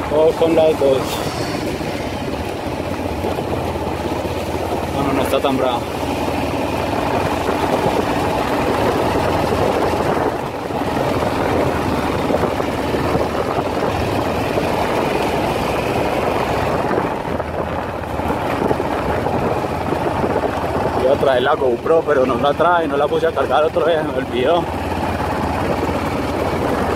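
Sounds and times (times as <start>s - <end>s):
wind rushing: 0.0s - 21.3s
motorcycle engine running: 0.0s - 26.9s.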